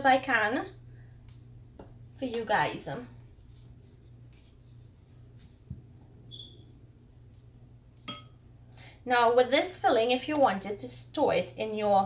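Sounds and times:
steady low hum: 0.0 - 12.0
soft handling of wrappers: 3.2 - 6.2.

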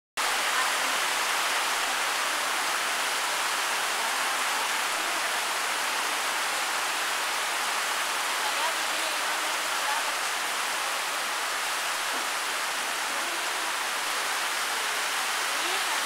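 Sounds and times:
heavy rain hissing: 0.2 - 16.0.

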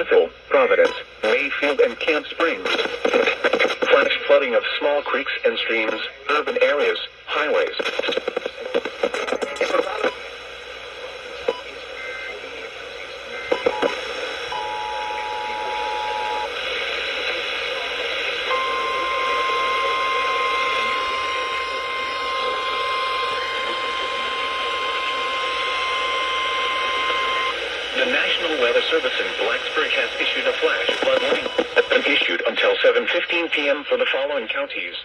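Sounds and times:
radio static hiss: 0.0 - 35.0
single-tone warning alarm: 18.5 - 27.5
two-tone attention beep: 18.5 - 27.6.

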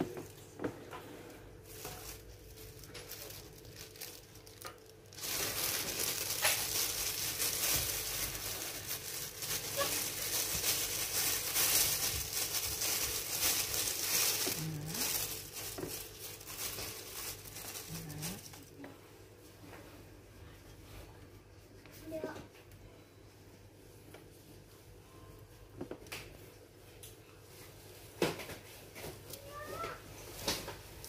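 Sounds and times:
plastic bag crinkling: 1.5 - 18.8.

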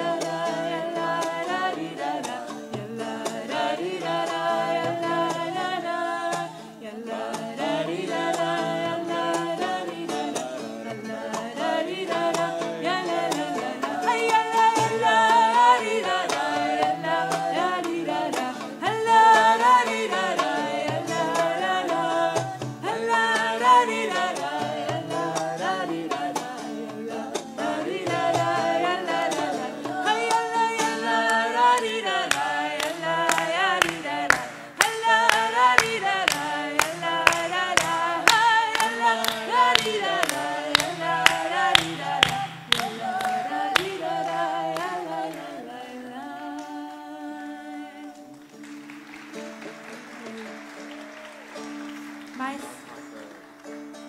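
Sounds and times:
group singing wordless melody: 0.0 - 54.0
ukulele: 0.0 - 54.0
hands clapping: 27.3 - 45.5, 48.1 - 54.0.

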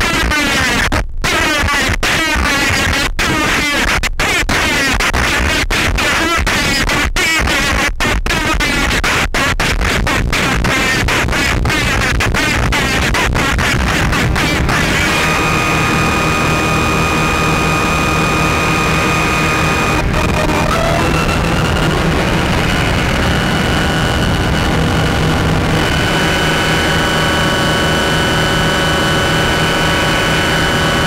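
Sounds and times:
synthesizer low drone: 12.5 - 31.0
synthesizer noise wash: 12.5 - 31.0
high steady synth tones: 12.8 - 31.0
gliding synth tone: 13.8 - 30.9.

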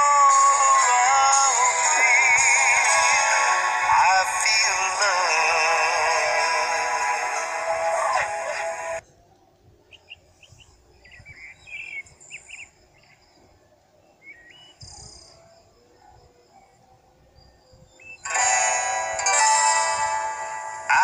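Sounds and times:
loud music with singing: 0.0 - 9.0
low background noise: 2.4 - 21.0
faint bird chirps: 9.0 - 18.3.

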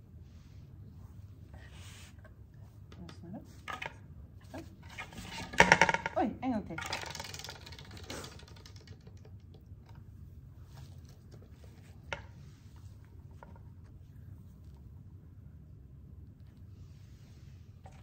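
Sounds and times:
spinning wheel clicking: 6.8 - 9.0.

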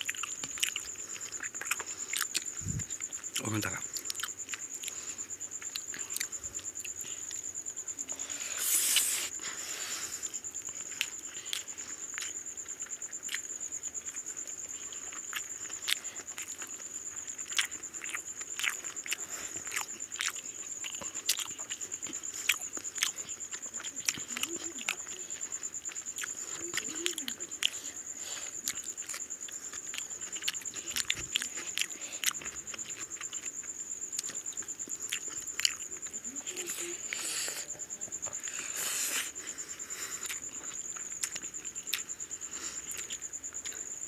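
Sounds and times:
people chewing and lip smacking: 0.0 - 44.0.

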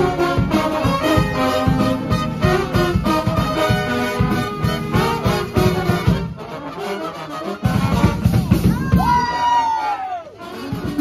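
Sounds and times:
bass drum beat: 0.0 - 6.4, 7.6 - 9.6
brass band playing: 0.0 - 11.0.

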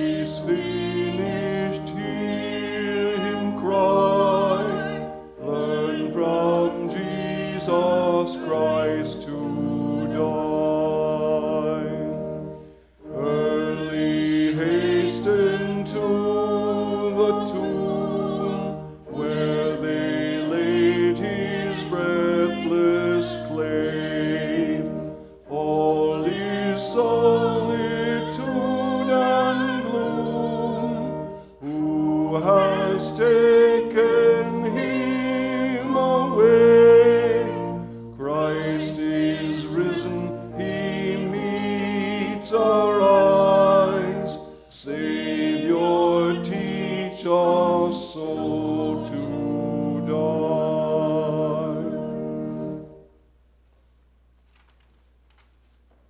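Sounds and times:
man singing a hymn: 0.0 - 53.0.

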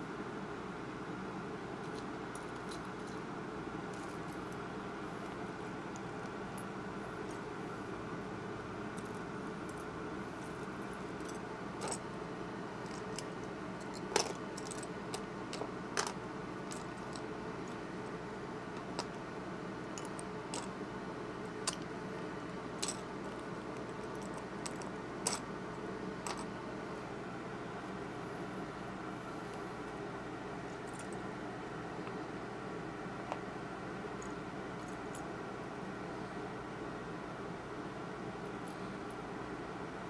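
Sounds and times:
steady background hum: 0.0 - 40.0.

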